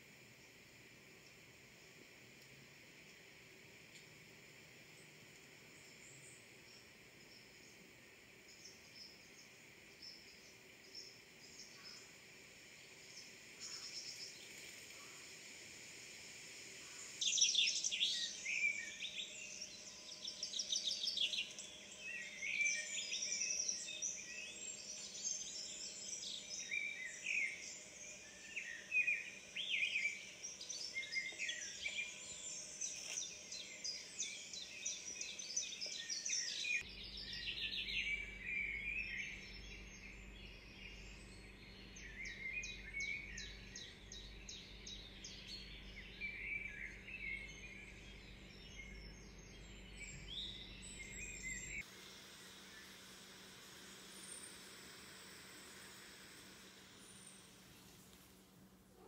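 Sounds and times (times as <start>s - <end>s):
songbirds chirping and singing: 16.8s - 51.9s.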